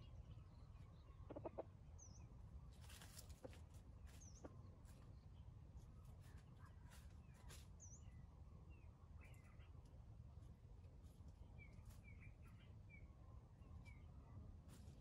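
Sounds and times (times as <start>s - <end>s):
soft rustles and clicks: 2.7s - 5.0s.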